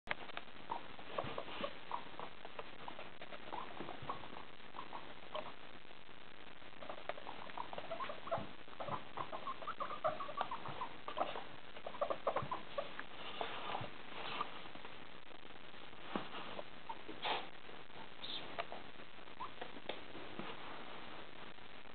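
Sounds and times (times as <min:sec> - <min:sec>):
guinea pigs squeaking: 0:00.1 - 0:05.8, 0:06.6 - 0:14.7, 0:16.1 - 0:20.2.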